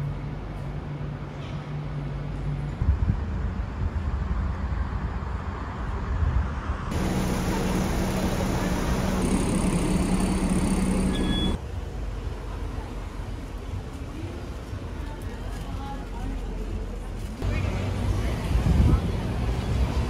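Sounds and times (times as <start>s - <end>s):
city street traffic rumble: 0.0s - 20.0s
bus engine idling: 6.9s - 12.8s
short high beep: 11.0s - 11.6s.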